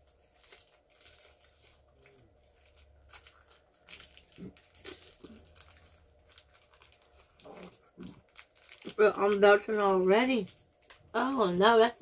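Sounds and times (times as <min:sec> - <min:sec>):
plastic wrapper crinkling: 0:00.0 - 0:12.0.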